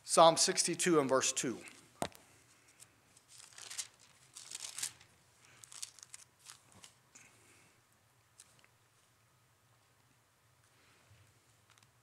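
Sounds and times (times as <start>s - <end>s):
thin pages being turned: 3.2s - 7.0s.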